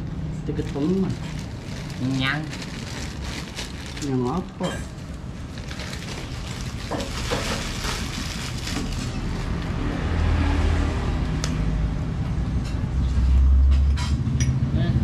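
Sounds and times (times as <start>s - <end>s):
vehicle engine rumble: 0.0s - 15.0s.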